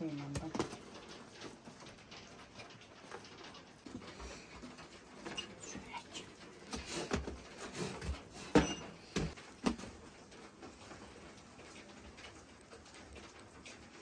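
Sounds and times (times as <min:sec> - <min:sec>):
flatbreads knocking and thudding: 0:06.6 - 0:10.4.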